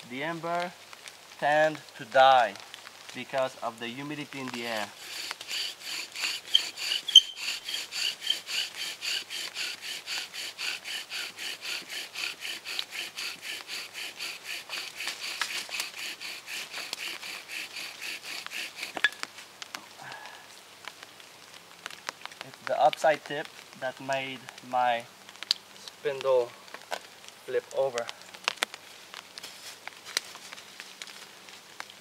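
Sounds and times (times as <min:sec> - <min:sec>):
bow drill rasping squeak: 0:05.0 - 0:19.2.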